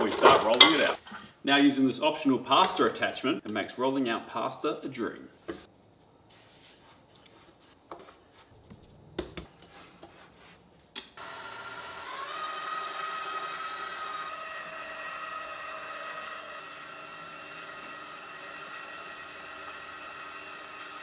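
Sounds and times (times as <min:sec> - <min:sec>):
stand mixer motor whining: 0:11.2 - 0:21.0.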